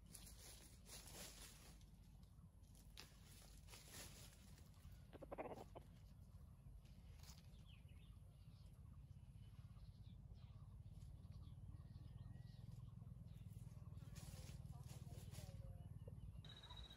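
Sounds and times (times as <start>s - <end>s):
faint bird chirps: 4.8s - 5.9s, 7.2s - 16.9s.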